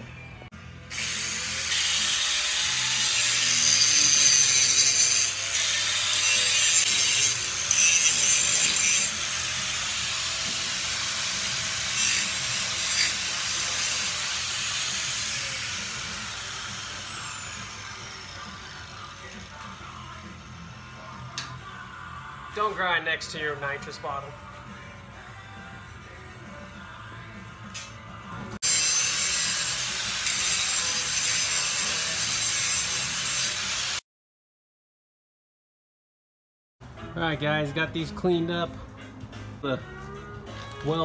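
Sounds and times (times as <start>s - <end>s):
grinder whining on metal: 0.9s - 20.4s, 28.6s - 34.0s.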